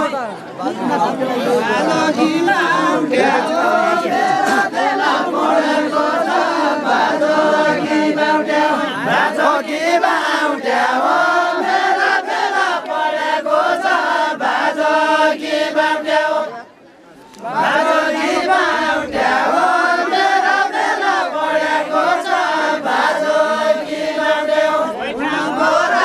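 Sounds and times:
group of men singing: 1.0 - 16.6, 17.4 - 26.0.

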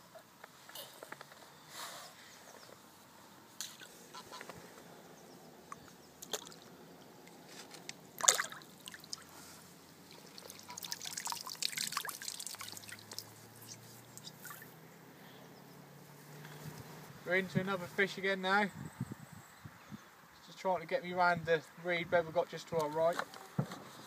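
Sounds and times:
water trickling and dripping: 5.8 - 7.4, 8.1 - 9.4, 10.0 - 14.7
fish splashing in water: 6.2 - 7.4, 8.1 - 9.4, 10.0 - 14.7.

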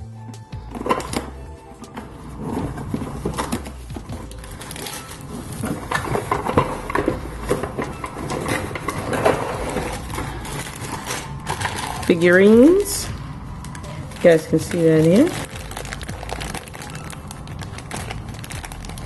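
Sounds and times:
plastic bags rustling: 0.8 - 19.0
cardboard box rustling: 2.1 - 12.2, 14.1 - 19.0.

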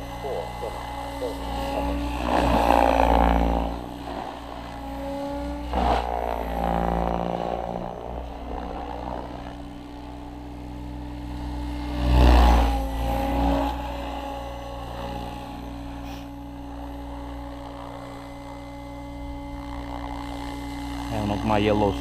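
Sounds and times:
rc helicopter motor whine: 0.0 - 22.0
rotor blades whooshing: 0.0 - 22.0.

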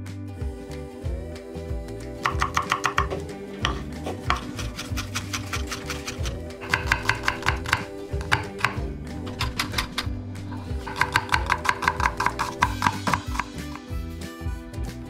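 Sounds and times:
background music: 0.0 - 15.0
knife chopping on wooden board: 2.2 - 10.1, 10.8 - 13.8.

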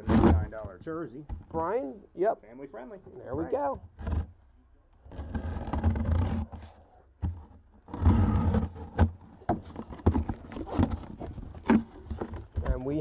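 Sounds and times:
cardboard box scraping and rustling: 5.1 - 13.0.

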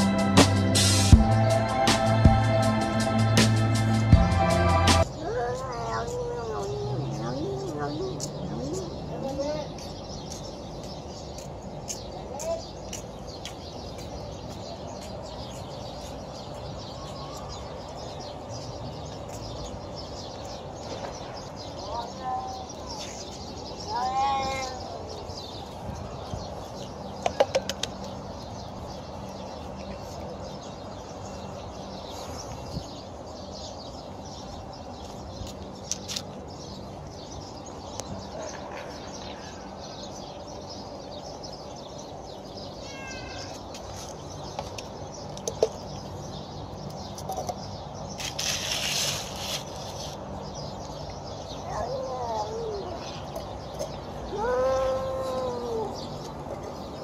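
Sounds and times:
burst of rustling noise: 48.2 - 50.2.

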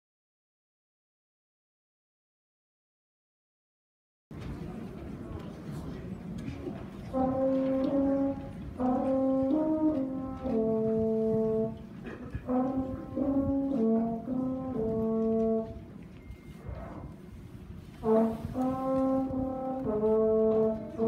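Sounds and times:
french horn sustained notes: 7.0 - 16.3, 17.8 - 21.0.

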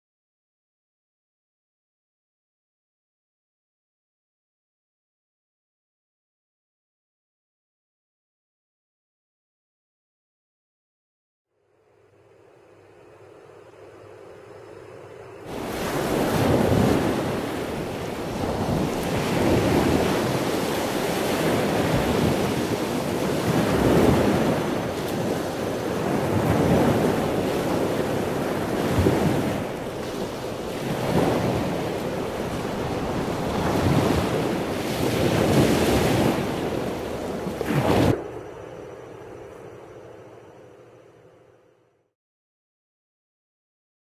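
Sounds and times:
sea surf breaking on shore: 15.5 - 38.8.

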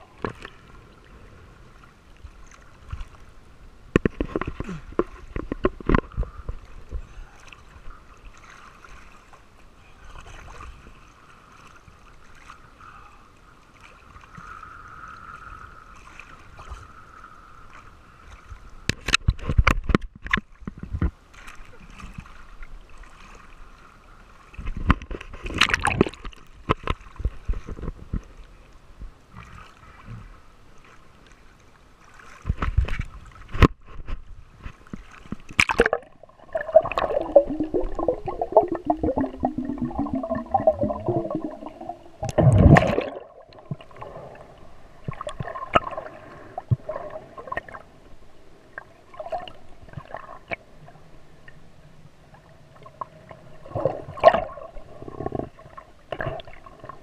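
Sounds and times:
water gurgling and sloshing: 0.0 - 57.0
knocks and splashes: 3.9 - 7.0, 24.5 - 28.3, 32.4 - 44.0
wavering bubbling sound: 35.7 - 44.0.

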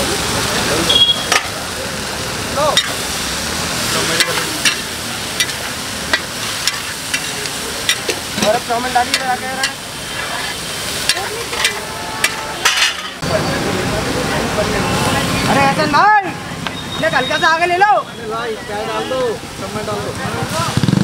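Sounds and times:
noodles sizzling: 0.0 - 20.8
spatula clanking on a pan: 2.8 - 3.0, 4.1 - 13.2.

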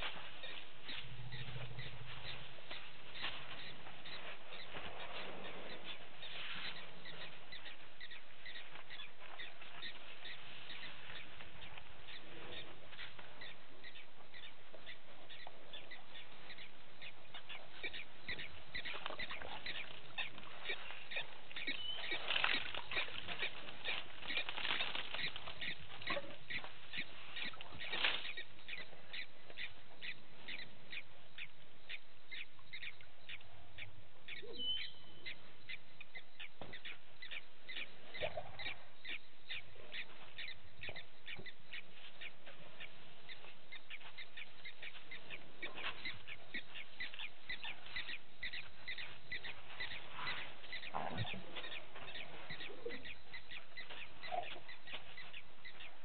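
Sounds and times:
gliding animal calls: 0.0 - 11.3, 16.6 - 29.3
animal clicking calls: 16.5 - 31.0, 44.2 - 55.9.

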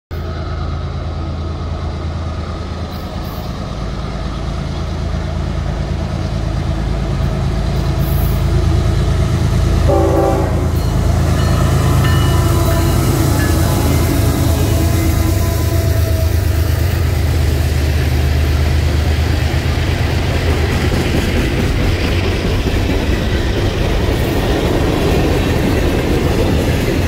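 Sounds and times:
diesel locomotive engine rumble: 0.1 - 27.0
train horn blast: 9.8 - 17.2.

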